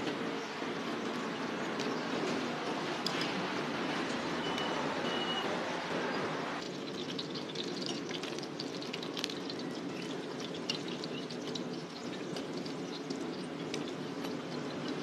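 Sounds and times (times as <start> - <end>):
dough sizzling in hot oil: 6.6 - 15.0.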